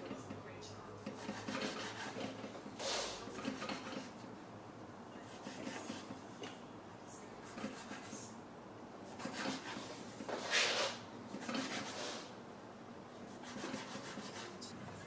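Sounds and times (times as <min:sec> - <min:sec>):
scraper rasping on cutting board: 0:01.1 - 0:04.2, 0:07.5 - 0:08.2, 0:09.1 - 0:12.3, 0:13.3 - 0:14.7.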